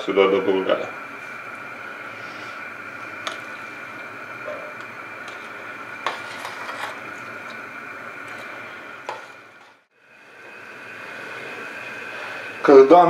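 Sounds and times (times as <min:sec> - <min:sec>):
pot boiling and bubbling: 0:00.0 - 0:13.0
steady hiss: 0:00.0 - 0:13.0
metal spoon stirring in pot: 0:04.7 - 0:07.6.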